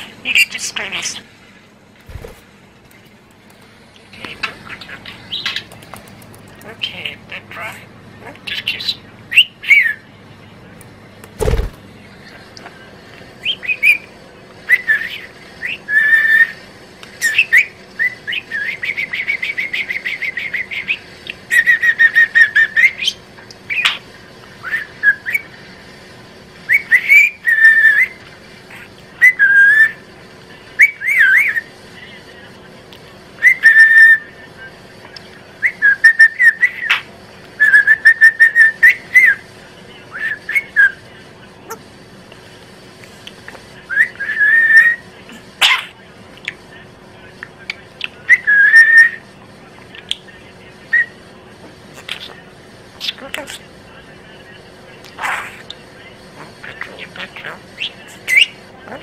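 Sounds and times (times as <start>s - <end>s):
budgerigar whistling and chirping: 17.2s - 24.0s, 26.7s - 30.0s.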